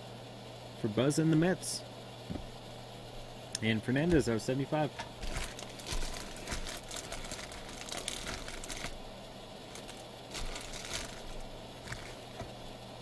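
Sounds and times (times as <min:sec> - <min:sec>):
foil wrappers crinkling: 0:05.0 - 0:12.6.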